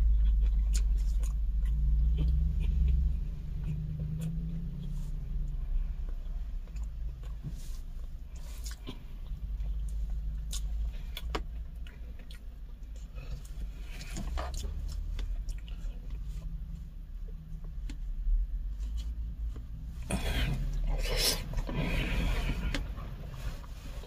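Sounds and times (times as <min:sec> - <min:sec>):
person eating: 0:00.0 - 0:05.0, 0:08.3 - 0:16.5, 0:20.0 - 0:24.0
steady low rumble: 0:00.0 - 0:24.0.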